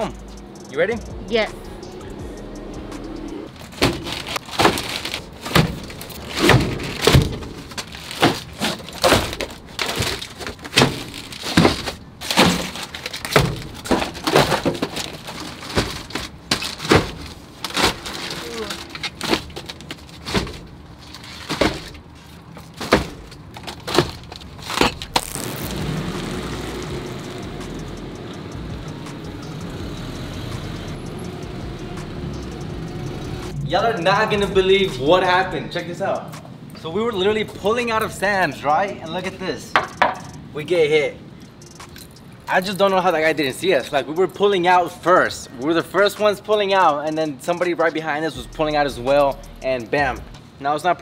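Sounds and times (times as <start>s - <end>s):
steady background noise: 0.0s - 51.0s
drink cases knocking and rattling: 3.6s - 25.0s.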